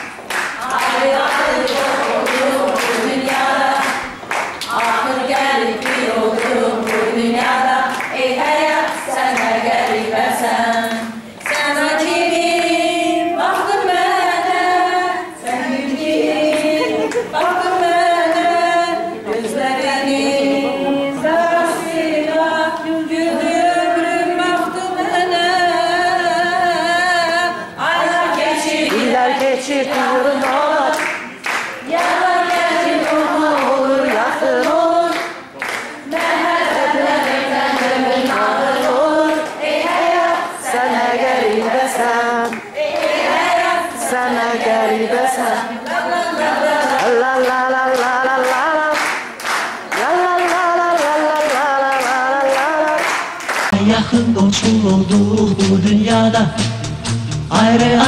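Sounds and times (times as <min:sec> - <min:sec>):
hand clapping on a beat: 0:00.0 - 0:11.8, 0:28.4 - 0:40.1, 0:41.3 - 0:43.3, 0:46.8 - 0:53.8
women singing together: 0:00.0 - 0:53.8.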